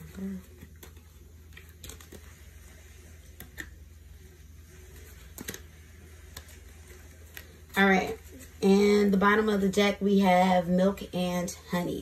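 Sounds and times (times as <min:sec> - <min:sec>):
cards being shuffled: 0:00.0 - 0:09.1.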